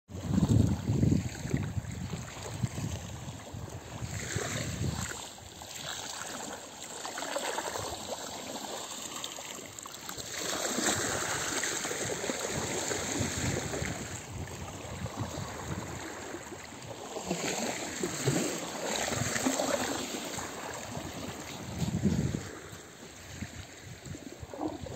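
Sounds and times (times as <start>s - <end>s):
small waves lapping on sand: 0.2s - 24.9s.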